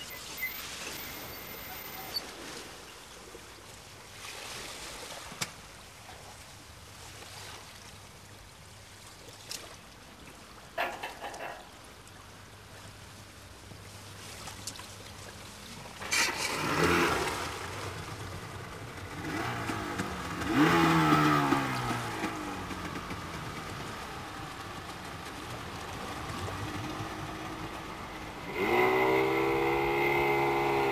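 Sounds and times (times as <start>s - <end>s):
outboard motor revving: 0.0s - 2.2s, 16.0s - 30.9s.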